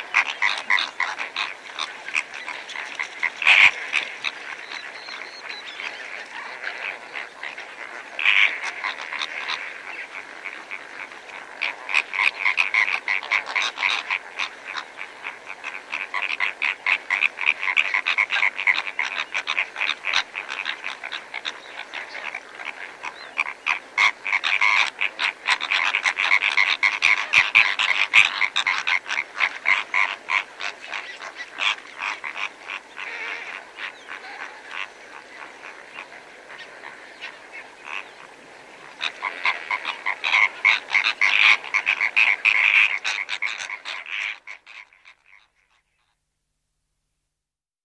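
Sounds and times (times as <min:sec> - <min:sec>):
flamingos honking calls: 0:00.0 - 0:46.2.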